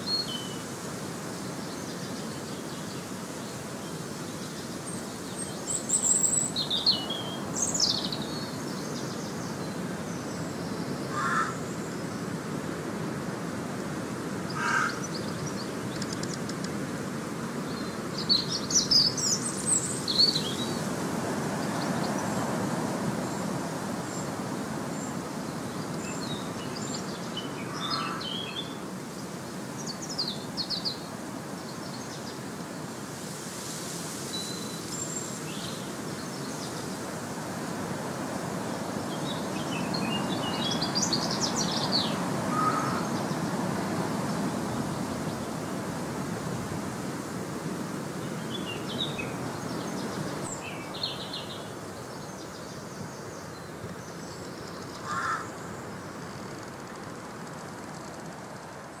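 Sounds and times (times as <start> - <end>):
small birds chirping: 14.6 - 16.8, 39.0 - 45.5.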